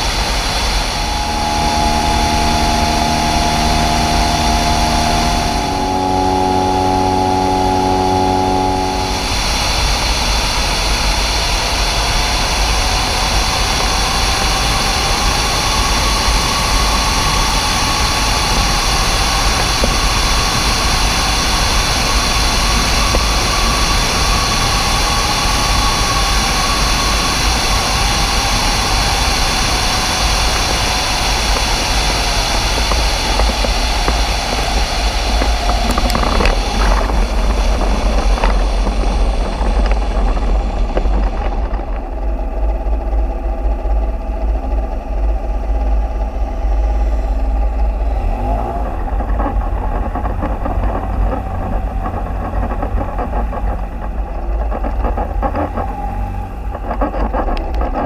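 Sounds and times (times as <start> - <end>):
wind rush on microphone: 0.0 - 47.0
light aircraft engine drone: 0.0 - 58.0.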